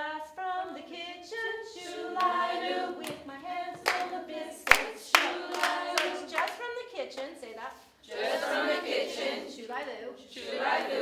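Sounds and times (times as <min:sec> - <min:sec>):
women singing together: 0:00.0 - 0:06.9, 0:08.0 - 0:11.0
hand clap: 0:02.2 - 0:02.4, 0:03.0 - 0:06.6.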